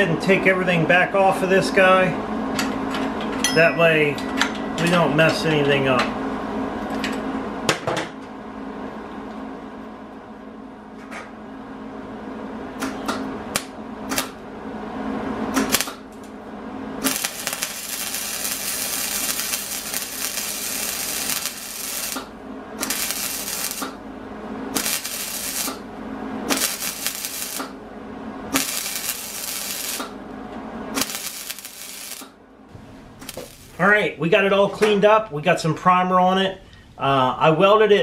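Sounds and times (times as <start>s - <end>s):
welding arc crackle: 13.6s - 14.4s, 15.6s - 16.3s, 17.0s - 24.0s, 24.7s - 25.9s, 26.5s - 27.8s, 28.5s - 30.2s, 30.9s - 32.4s, 33.2s - 33.8s.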